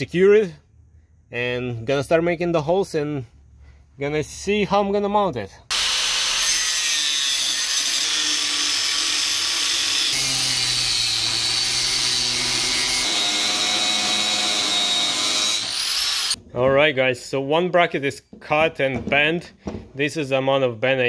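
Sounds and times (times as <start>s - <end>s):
power tool cutting metal: 5.7s - 16.4s.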